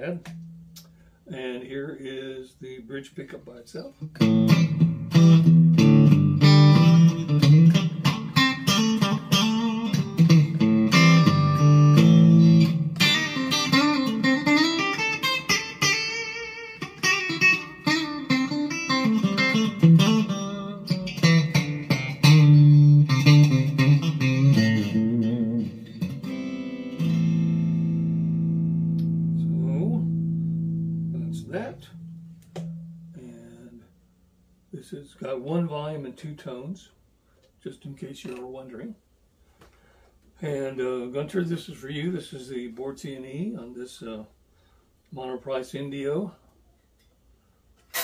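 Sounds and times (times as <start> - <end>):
electric guitar chords and lines: 4.0 - 33.7.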